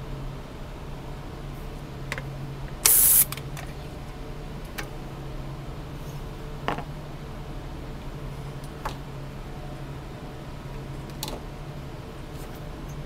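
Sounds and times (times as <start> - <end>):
canned air hissing: 2.8 - 3.3.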